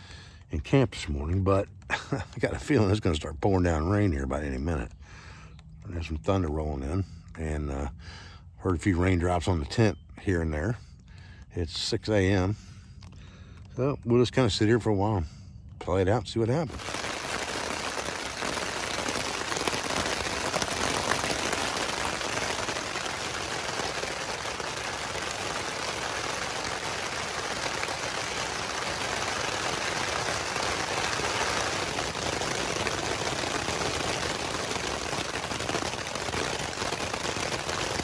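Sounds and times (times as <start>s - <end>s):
rain falling on a tent: 1.0s - 4.7s, 16.7s - 38.0s.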